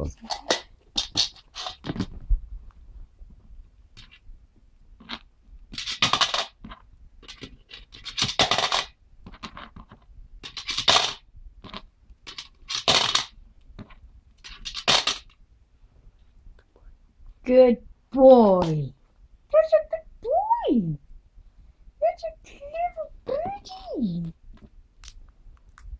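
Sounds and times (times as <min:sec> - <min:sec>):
beak scraping coins: 0:05.0 - 0:06.6, 0:07.2 - 0:09.7, 0:10.4 - 0:11.2, 0:12.3 - 0:13.4, 0:14.4 - 0:15.3
coins clinking and rattling: 0:07.3 - 0:08.9, 0:12.3 - 0:13.3.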